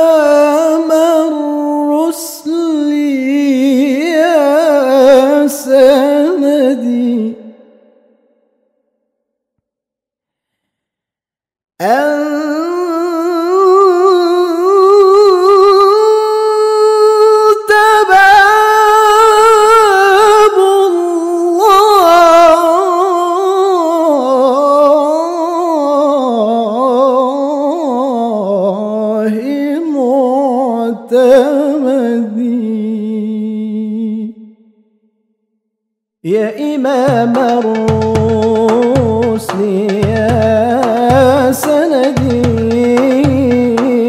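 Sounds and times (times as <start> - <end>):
person singing melisma: 0.0 - 8.0, 36.3 - 44.0.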